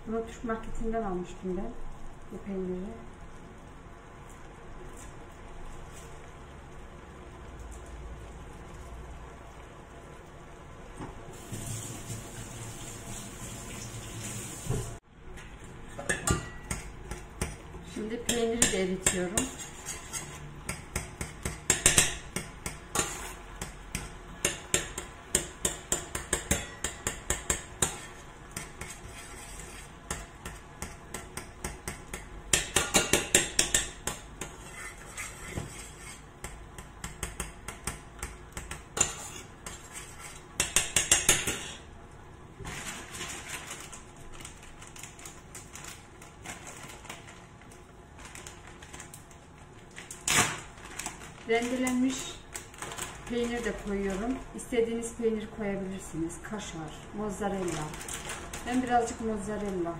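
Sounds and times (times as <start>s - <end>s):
metal spoon scraping saucepan: 18.6s - 20.6s, 22.9s - 23.4s, 27.8s - 30.0s, 34.4s - 36.3s, 39.0s - 41.8s.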